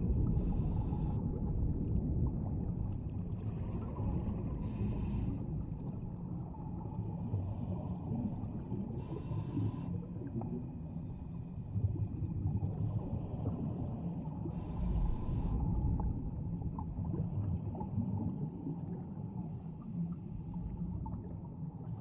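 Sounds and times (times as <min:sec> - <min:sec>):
low underwater rumble: 0:00.0 - 0:22.0
diver breathing through regulator: 0:00.3 - 0:01.2, 0:04.6 - 0:05.5, 0:09.0 - 0:09.9, 0:14.5 - 0:15.8.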